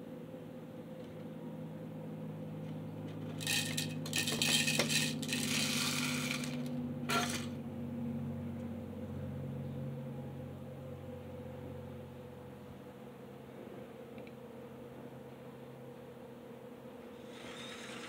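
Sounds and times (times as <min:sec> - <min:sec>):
steady low hum: 0:00.0 - 0:18.0
small coal pieces rattling: 0:03.4 - 0:07.5.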